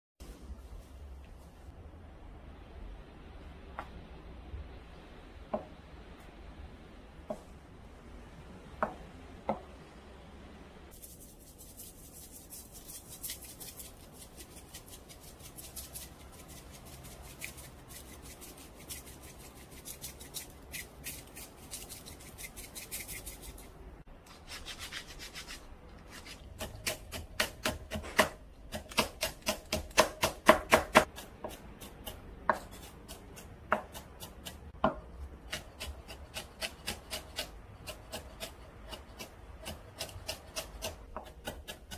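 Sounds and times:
knife chopping on wooden board: 0:26.2 - 0:41.9.

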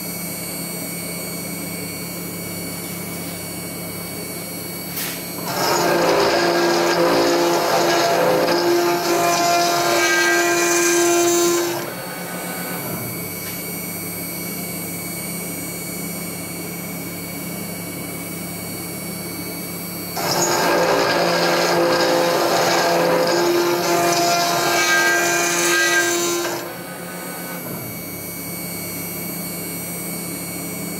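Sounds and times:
router bit milling steel: 0:05.2 - 0:13.3, 0:20.1 - 0:28.1
router spindle running: 0:05.3 - 0:13.4, 0:20.0 - 0:28.2.

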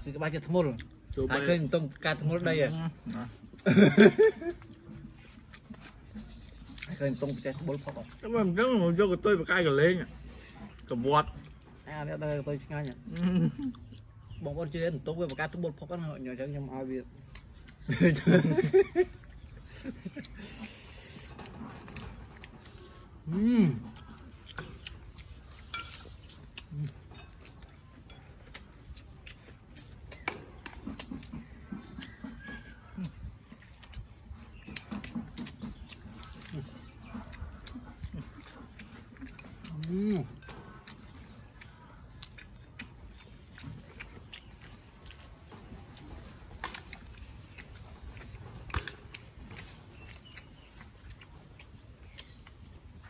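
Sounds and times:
chewing clicks: 0:04.5 - 0:08.6, 0:17.2 - 0:17.9, 0:19.1 - 0:53.0
spoons clinking on plates: 0:25.7 - 0:26.2.

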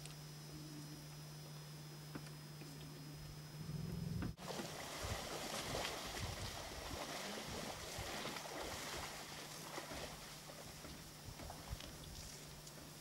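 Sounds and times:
faint low hum: 0:00.0 - 0:13.0
elephants splashing through mud: 0:04.4 - 0:10.8.

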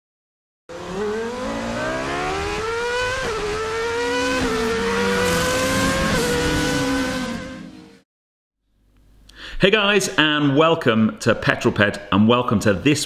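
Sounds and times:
car engine accelerating through gears: 0:00.7 - 0:08.0.

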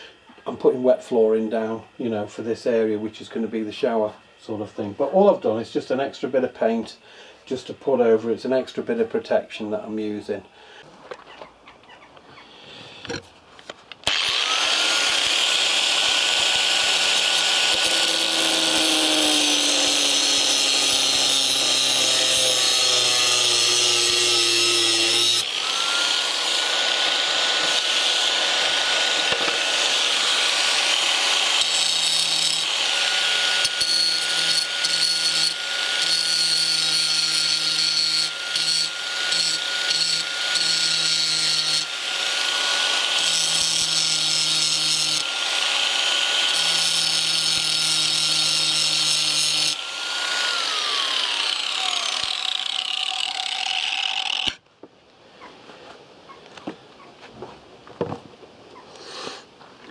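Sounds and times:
angle grinder running: 0:14.0 - 0:54.6
grinder grinding steel: 0:14.0 - 0:54.6.

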